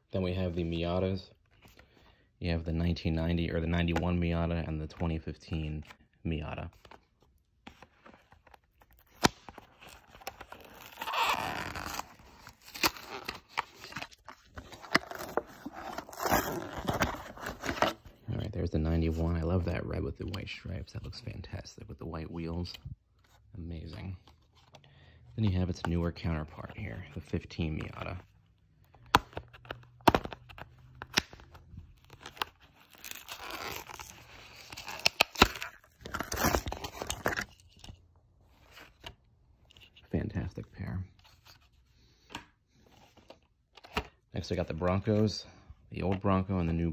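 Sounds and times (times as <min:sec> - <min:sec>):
card tearing: 0:07.8 - 0:18.1, 0:29.0 - 0:37.9
packaging scraping and crinkling: 0:08.3 - 0:18.0, 0:32.0 - 0:37.8.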